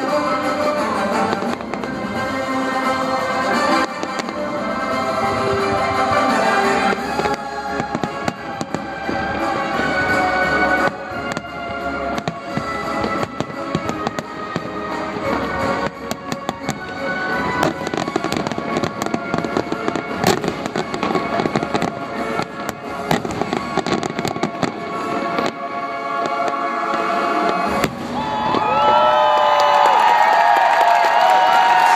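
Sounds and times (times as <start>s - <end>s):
firework bangs and crackling: 0.0s - 31.9s
music: 0.0s - 31.9s
crowd cheering and whooping: 27.7s - 31.9s.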